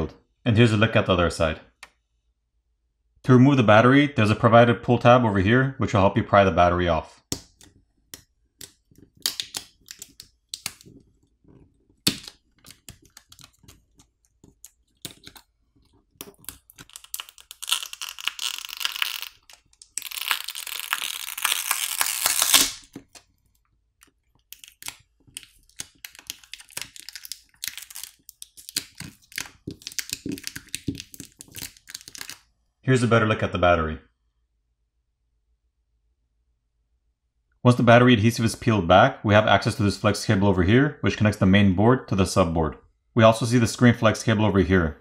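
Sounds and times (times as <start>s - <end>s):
adhesive crackling peel: 8.6s - 32.4s.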